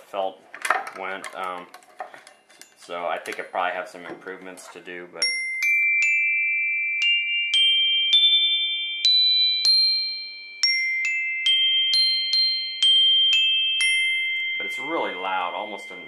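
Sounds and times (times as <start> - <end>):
xylophone notes ringing: 5.2 - 16.0.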